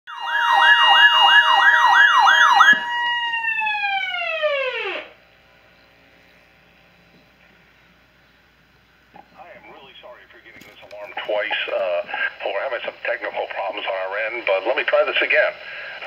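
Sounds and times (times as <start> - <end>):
weather radio alarm tone: 0.1 - 5.2, 9.4 - 15.3
faint hiss: 5.2 - 16.0.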